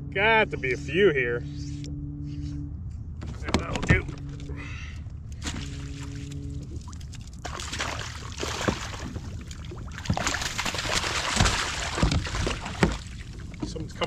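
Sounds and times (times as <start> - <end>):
steady hum: 0.0 - 14.0
water splashing against boat: 3.2 - 14.0.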